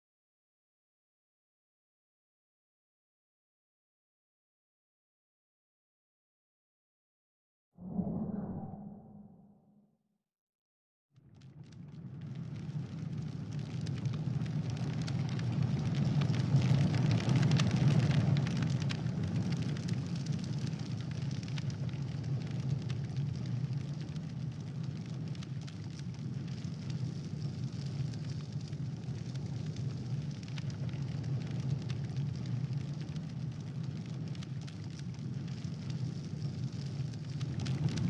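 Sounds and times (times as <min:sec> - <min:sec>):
large fire crackling: 0:11.2 - 0:38.0.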